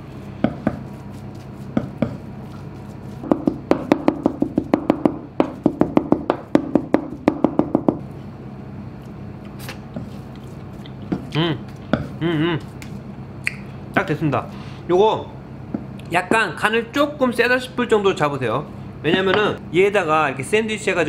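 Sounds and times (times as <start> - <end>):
knife chopping on plastic board: 0.4 - 0.9, 1.7 - 2.2, 3.2 - 7.9.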